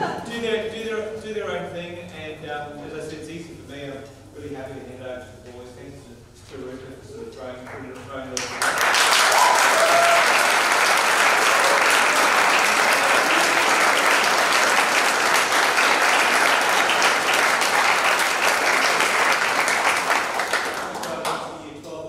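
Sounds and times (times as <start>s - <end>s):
audience applauding: 7.7s - 21.5s.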